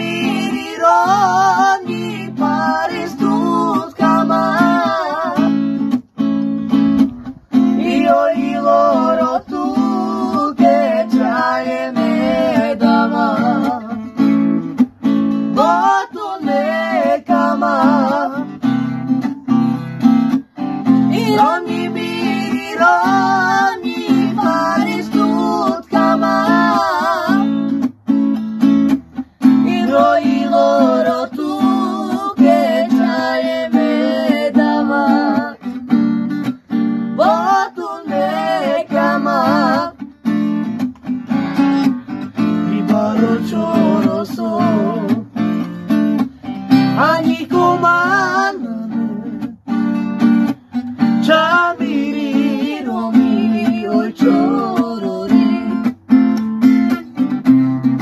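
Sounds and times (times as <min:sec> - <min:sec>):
young man singing: 0:00.0 - 0:05.6, 0:07.7 - 0:14.2, 0:15.5 - 0:18.6, 0:21.0 - 0:27.6, 0:29.5 - 0:35.7, 0:37.2 - 0:40.0, 0:42.4 - 0:45.5, 0:46.7 - 0:49.6, 0:51.1 - 0:55.9
acoustic guitar strumming: 0:00.0 - 0:58.0.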